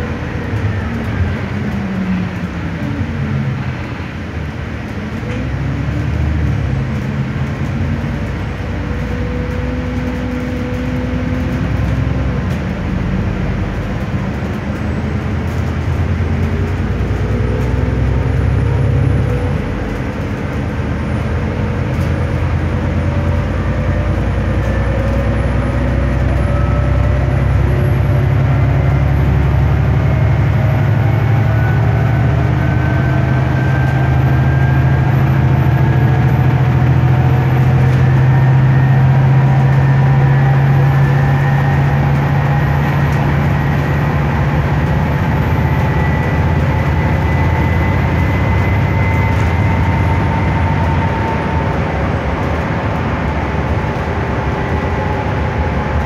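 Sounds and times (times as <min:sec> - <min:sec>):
bus engine drone: 0:00.0 - 0:56.0
road noise: 0:00.0 - 0:56.0
faint rising whine: 0:45.2 - 0:56.0.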